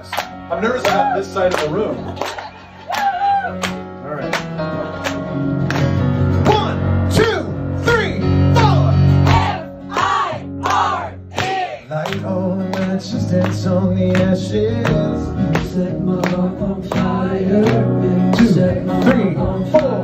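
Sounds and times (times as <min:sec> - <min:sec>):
man singing: 0:11.8 - 0:20.0.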